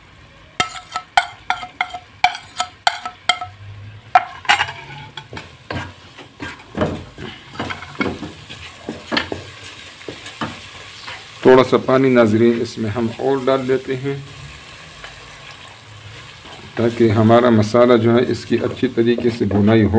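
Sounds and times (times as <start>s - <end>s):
low sizzle: 0.0s - 19.9s
spatula scraping and stirring in pot: 0.6s - 3.5s, 4.1s - 11.4s, 14.6s - 19.8s
wooden spatula tapping a dish: 0.6s - 3.5s.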